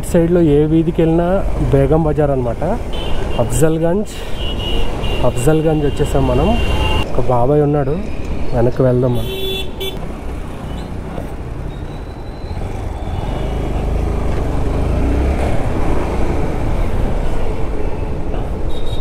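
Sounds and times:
road and traffic noise: 0.0 - 19.0
motorcycle engine rumble: 10.0 - 18.6.

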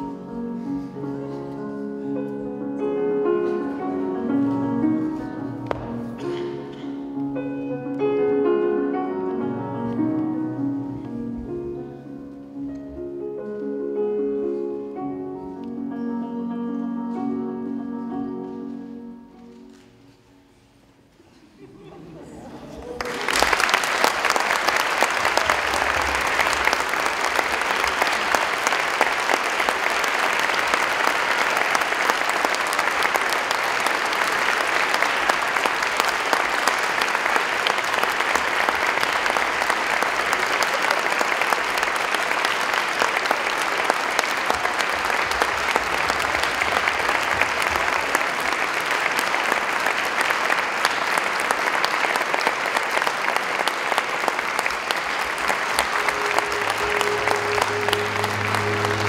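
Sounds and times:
audience applauding: 22.7 - 59.0.

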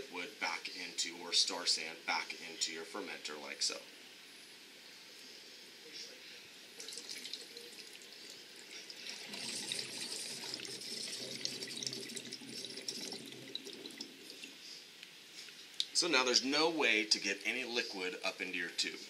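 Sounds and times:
liquid gurgling in a jar: 6.8 - 14.6.

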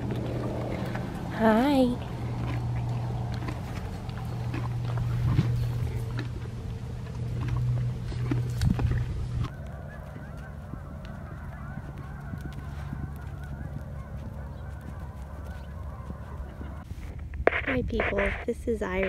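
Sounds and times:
low rumble: 0.0 - 19.0
geese honking: 9.1 - 16.9.

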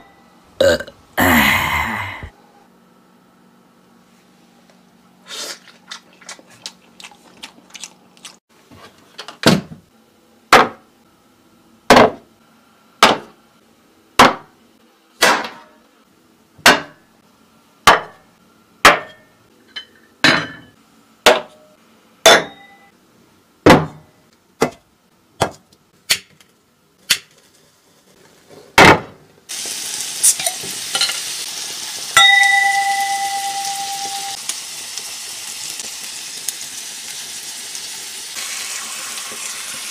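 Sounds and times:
glass ringing: 22.4 - 22.9, 32.2 - 34.4
meat sizzling on grill pan: 29.5 - 32.2, 32.9 - 39.9.

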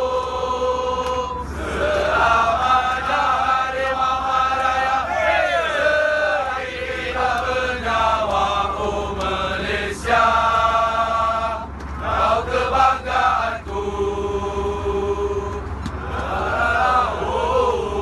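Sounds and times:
men's voices chanting in unison: 0.0 - 18.0
steady low cabin hum: 0.0 - 18.0.

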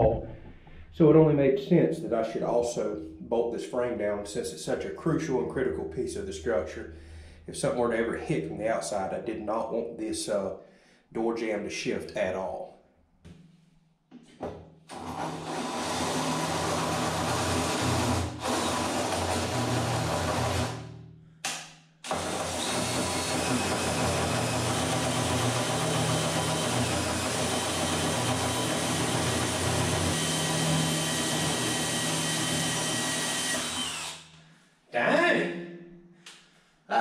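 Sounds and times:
cordless drill cutting steel: 14.9 - 20.8, 22.0 - 34.3.

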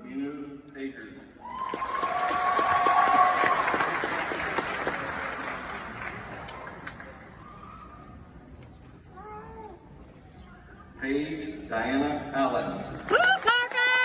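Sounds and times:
audience applause: 1.6 - 7.4
faint voice: 9.1 - 11.0.

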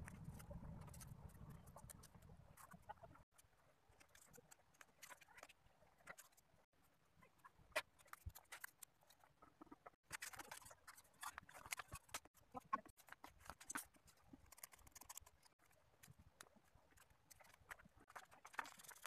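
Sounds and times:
paper rustling and crinkling: 10.0 - 19.0.

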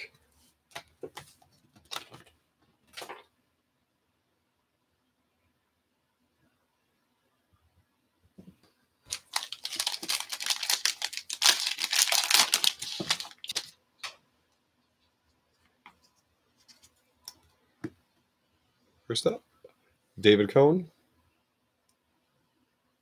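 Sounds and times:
foil wrapper tearing and crinkling: 9.1 - 13.8.

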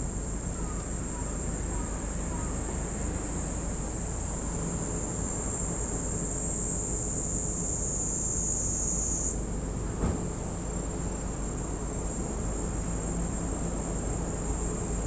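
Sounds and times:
insect chorus shrilling: 0.0 - 9.8.

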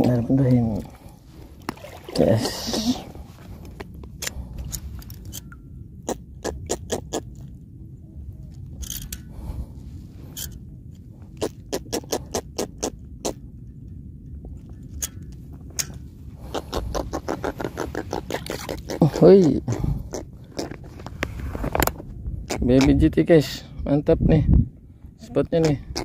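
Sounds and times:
low steady rumble: 0.0 - 26.0.

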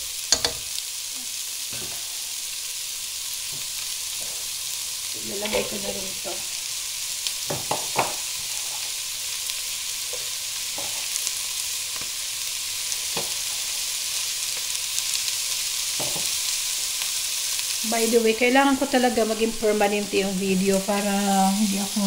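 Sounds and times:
vegetables sizzling in oil: 0.0 - 22.0.

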